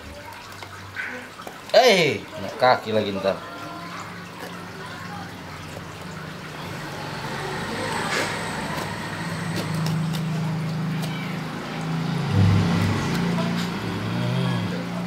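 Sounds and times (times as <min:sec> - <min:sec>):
low motor hum: 0:05.4 - 0:15.0
husk cracking: 0:08.2 - 0:11.6.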